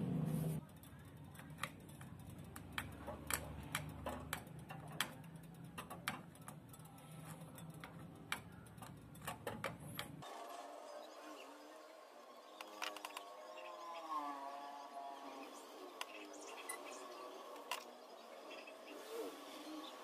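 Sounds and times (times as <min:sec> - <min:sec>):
light metallic ticks and clicks: 0:00.6 - 0:10.2.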